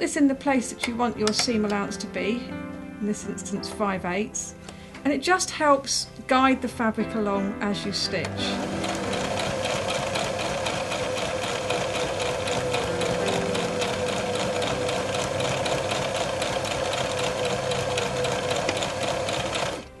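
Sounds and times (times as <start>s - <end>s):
sewing machine motor hum: 8.4s - 20.0s.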